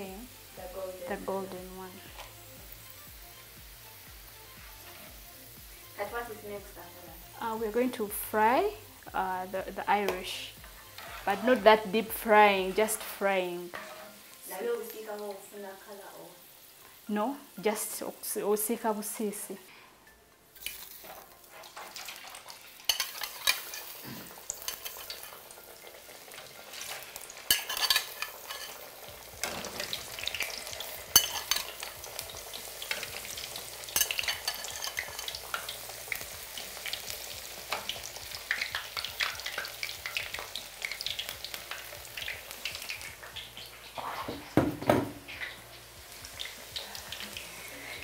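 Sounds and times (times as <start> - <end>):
oil sizzling and crackling: 0.0 - 48.0.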